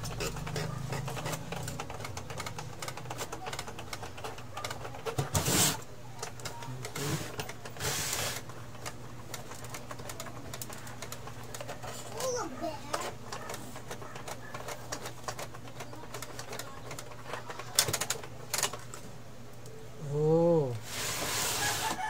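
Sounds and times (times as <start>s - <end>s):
printer parts clicking and rattling: 0.0s - 5.5s, 8.4s - 19.1s.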